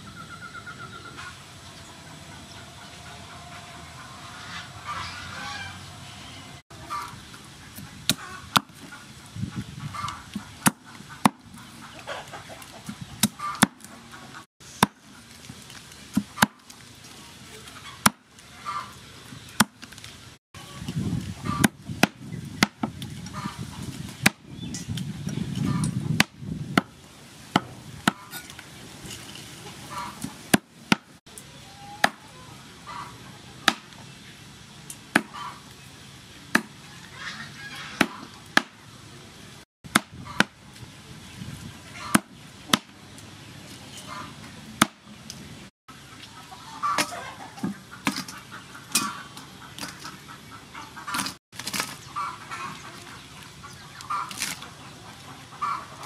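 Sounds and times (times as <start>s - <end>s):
cleaver chopping on wooden block: 36.5s - 36.7s, 39.9s - 40.6s.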